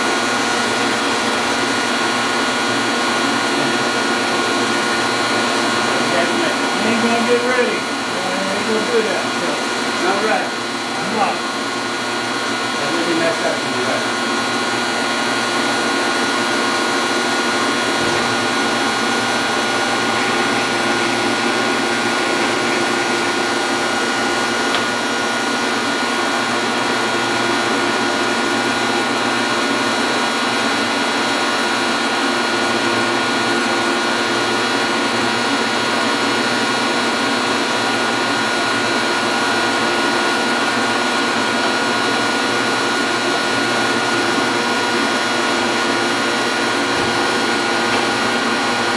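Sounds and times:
metal lathe humming and whining: 0.0s - 48.9s.

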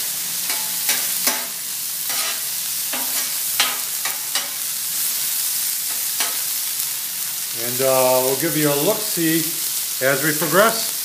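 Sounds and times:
food sizzling on a griddle: 0.0s - 11.0s
spatula scraping metal griddle: 0.5s - 4.6s.

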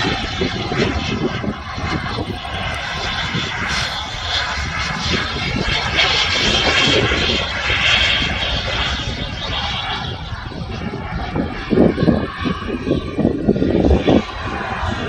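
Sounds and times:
model jet engine rushing: 0.0s - 15.0s
wind rumble on microphone: 0.0s - 15.0s.

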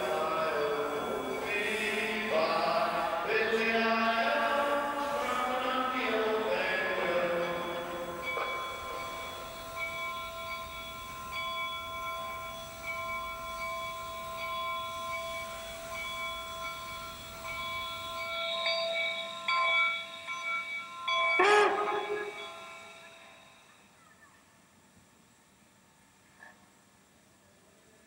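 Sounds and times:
steam locomotive whistle: 0.0s - 24.0s.

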